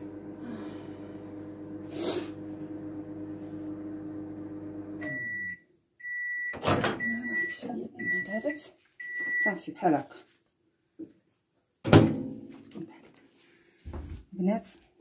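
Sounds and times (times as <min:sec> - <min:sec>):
microwave oven humming: 0:00.0 - 0:05.6.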